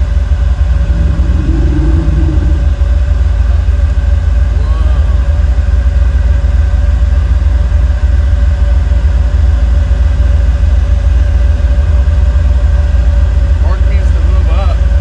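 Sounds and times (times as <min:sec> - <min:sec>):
faint steady hum: 0:00.0 - 0:07.1
engine idling: 0:00.0 - 0:15.0.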